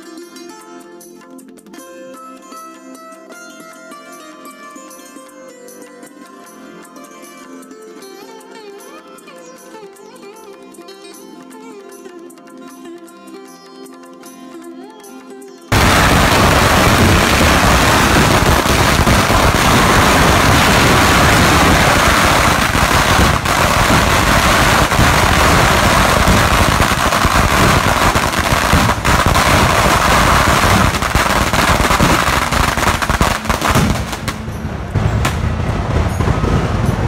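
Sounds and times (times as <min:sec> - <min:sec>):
firecrackers crackling: 0:15.7 - 0:37.0.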